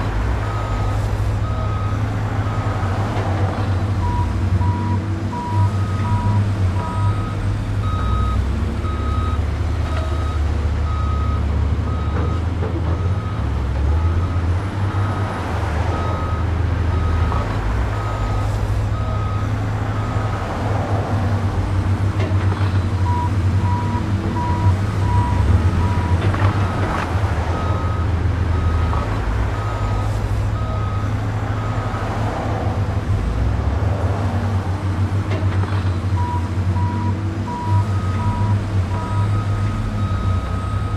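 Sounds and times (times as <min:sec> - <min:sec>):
diesel engine rumble: 0:00.0 - 0:40.9
truck reversing alarm beeping: 0:00.4 - 0:02.8, 0:04.0 - 0:20.3, 0:22.6 - 0:31.9, 0:35.7 - 0:40.9.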